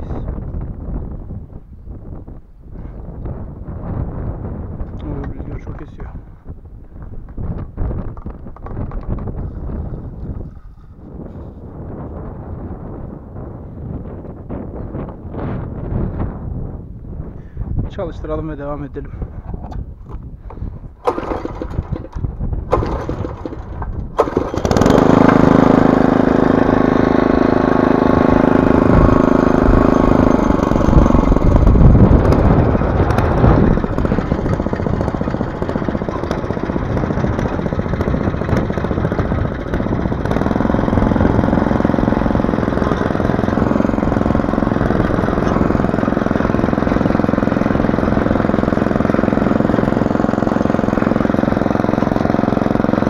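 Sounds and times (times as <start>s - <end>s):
small petrol engine starting and running: 7.9s - 11.7s, 20.5s - 53.0s.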